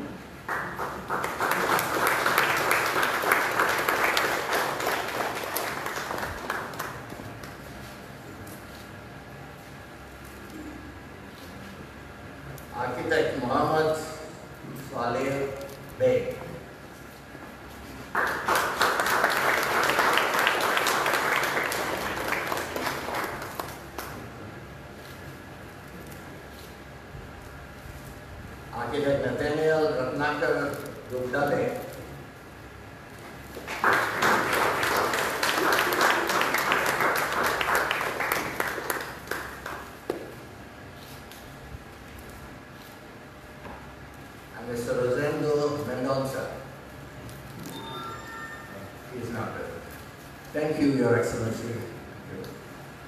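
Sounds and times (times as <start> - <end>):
audience applauding: 0.4 - 7.2, 18.1 - 24.3, 33.6 - 39.9.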